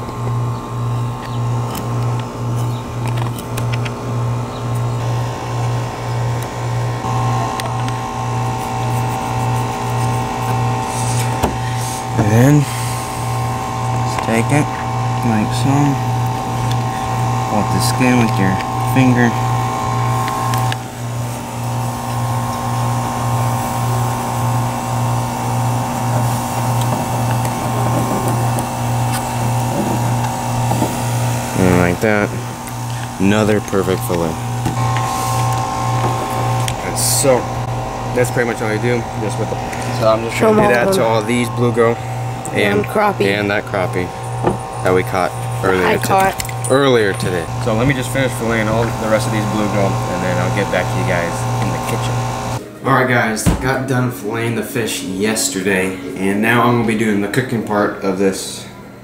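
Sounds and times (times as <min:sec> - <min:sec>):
machine humming: 0:00.0 - 0:59.0.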